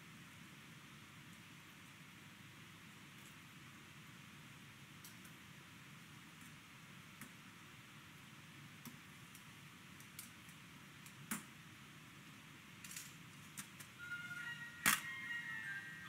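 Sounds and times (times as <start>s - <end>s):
tune playing: 14.0s - 16.0s.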